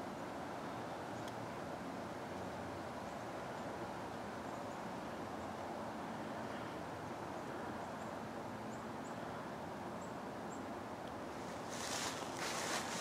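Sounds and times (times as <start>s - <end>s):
outdoor hiss: 0.0s - 13.0s
footsteps crunching dry leaves: 11.4s - 13.0s.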